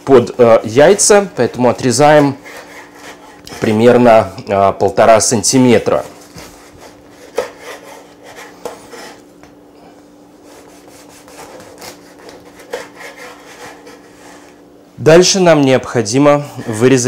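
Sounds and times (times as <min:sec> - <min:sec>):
knife sawing through bread crust: 0:00.7 - 0:03.8, 0:06.4 - 0:09.2, 0:10.4 - 0:14.5, 0:16.5 - 0:17.0.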